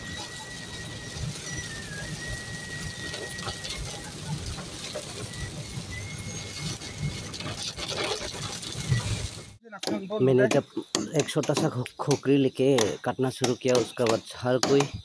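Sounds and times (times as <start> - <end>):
high whistle: 0.0 - 7.6
car road and engine noise: 0.0 - 9.6
rain on windscreen: 0.0 - 9.6
windscreen wipers: 0.0 - 9.6.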